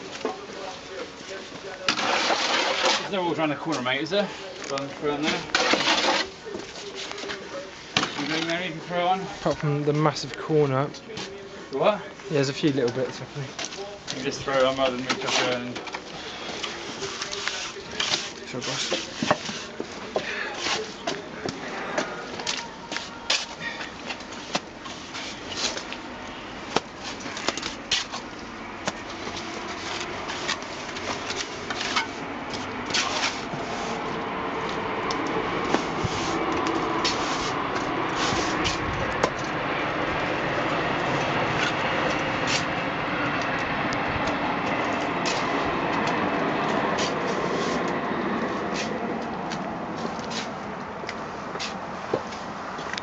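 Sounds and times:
trowel scraping mortar on stone: 0:01.9 - 0:03.2, 0:05.2 - 0:06.3.

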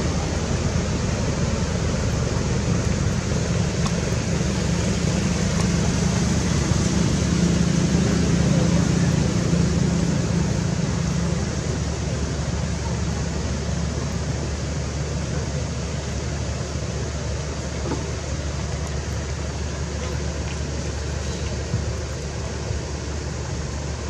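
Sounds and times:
low hum: 0:00.0 - 0:24.0
steady rushing noise: 0:00.0 - 0:24.0.

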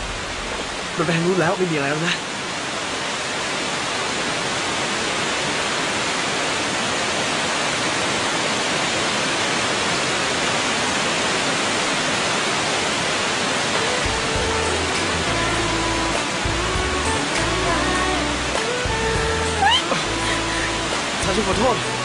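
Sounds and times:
waterfall pouring into pool: 0:00.0 - 0:16.6.

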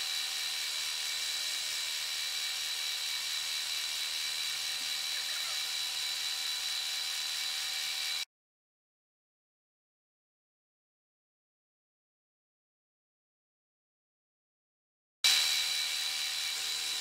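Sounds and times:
milling machine high-pitched whine: 0:00.0 - 0:08.2, 0:15.3 - 0:17.0.

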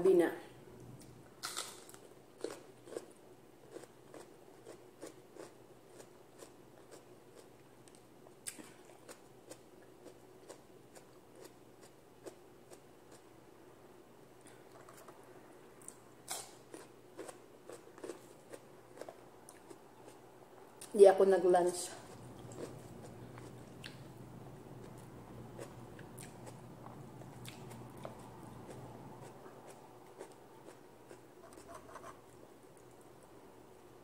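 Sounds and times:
faint steady hum: 0:00.0 - 0:34.0
mouth chewing: 0:24.8 - 0:31.8.

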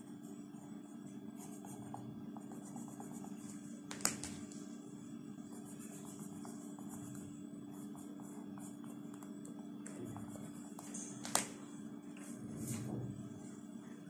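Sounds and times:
steady low hum: 0:00.0 - 0:14.0
pencil scratching on paper: 0:00.6 - 0:03.4, 0:05.5 - 0:09.1.

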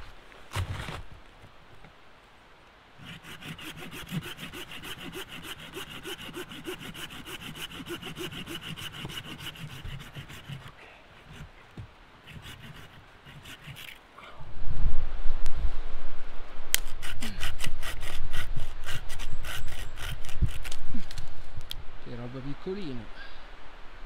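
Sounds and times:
saw cutting branch: 0:03.0 - 0:11.5, 0:12.2 - 0:14.0, 0:16.8 - 0:21.3
scattered scrapes: 0:12.2 - 0:14.0.

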